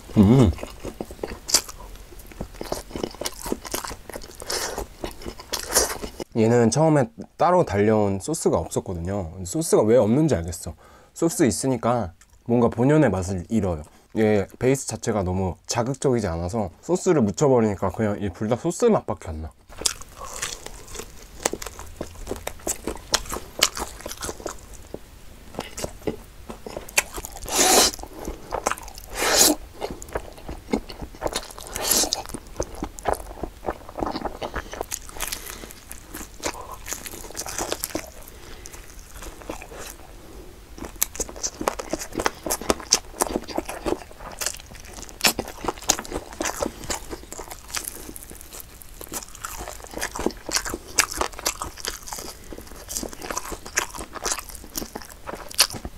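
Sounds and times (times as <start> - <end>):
crunchy chewing: 0.0 - 6.3, 19.7 - 55.9.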